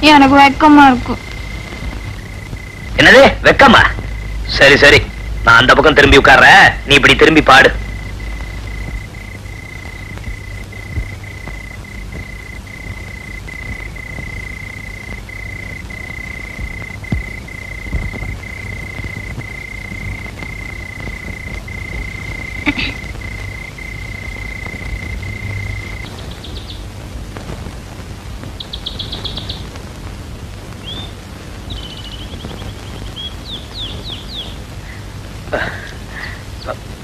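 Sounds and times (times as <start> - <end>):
crickets droning: 0.0 - 37.0
low hiss and hum: 0.0 - 37.0
birds chirping: 7.4 - 27.0, 28.5 - 29.8, 30.7 - 36.9.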